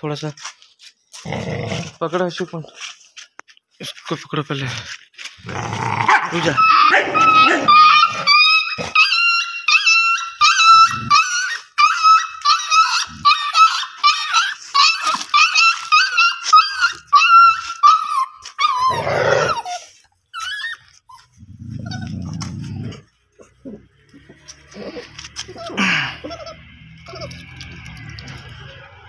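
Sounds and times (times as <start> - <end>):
puppies whining: 6.4 - 29.0.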